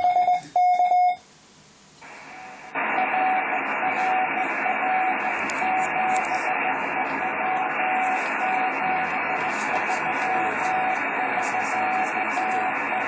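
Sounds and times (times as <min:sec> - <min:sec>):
morse code beeps: 0:00.0 - 0:01.2, 0:02.3 - 0:13.0
radio receiver hiss: 0:01.8 - 0:13.0
weak morse tone: 0:02.2 - 0:13.0.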